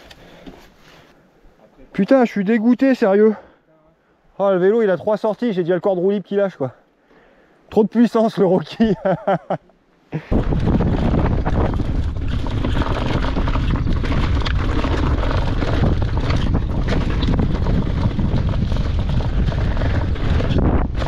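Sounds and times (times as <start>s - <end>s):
bike tyres rattling over stones: 10.3s - 21.0s
wind buffeting microphone: 10.3s - 21.0s.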